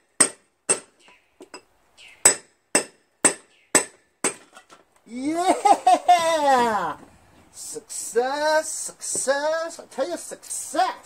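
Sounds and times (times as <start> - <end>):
hammer striking chisel on metal: 0.2 - 0.9, 2.2 - 4.4
man shouting: 5.1 - 7.0.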